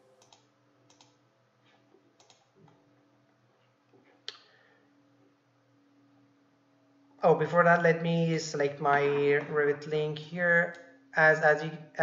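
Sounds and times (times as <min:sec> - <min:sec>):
computer mouse clicks: 0:00.1 - 0:02.8.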